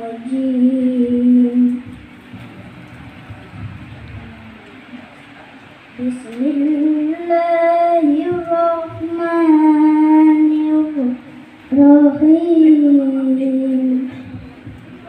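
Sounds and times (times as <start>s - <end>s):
child reciting melodically: 0.0s - 2.1s, 6.0s - 14.4s.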